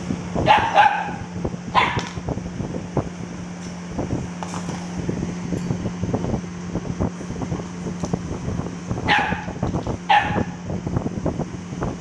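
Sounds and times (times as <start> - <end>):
steady low hum: 0.0 - 12.0
dog barking: 0.4 - 2.2, 9.0 - 10.6.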